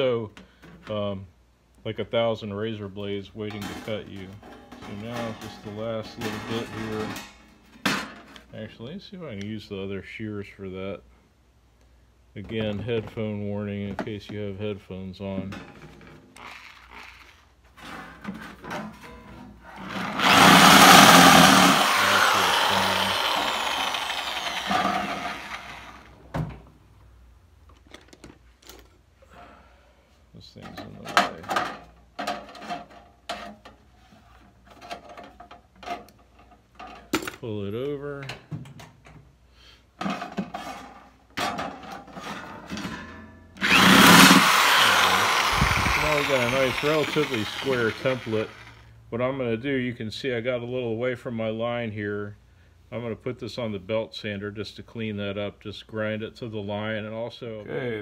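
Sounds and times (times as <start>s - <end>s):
electric metal shear cutting: 19.9s - 26.1s, 43.6s - 48.8s.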